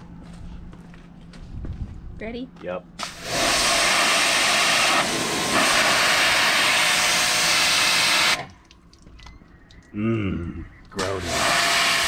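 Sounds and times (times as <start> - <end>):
pressure washer spraying: 3.0 - 8.5, 11.0 - 12.0.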